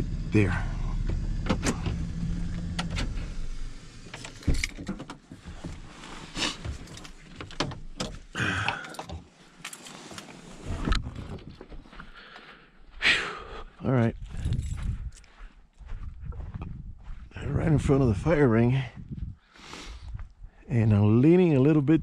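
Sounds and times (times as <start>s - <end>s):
clicks and rattles in cab: 1.0s - 3.3s, 4.1s - 9.8s.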